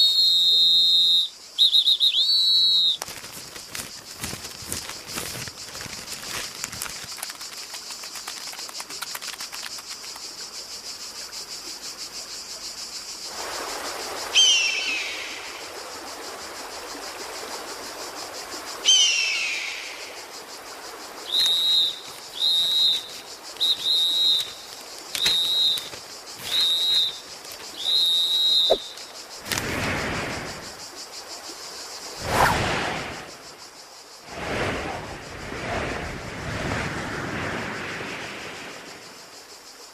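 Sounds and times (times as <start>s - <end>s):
loud falling whistles: 0.0s - 3.0s, 21.3s - 29.0s
steady high hiss: 0.0s - 39.9s.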